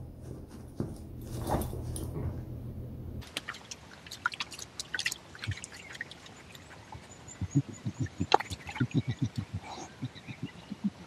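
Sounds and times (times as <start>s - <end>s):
wet clicks and drips: 3.2s - 7.1s.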